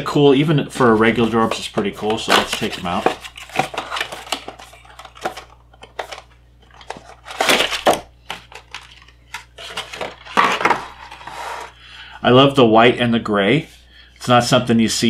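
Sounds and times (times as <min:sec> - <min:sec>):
plastic packaging crinkling: 0:02.2 - 0:11.6.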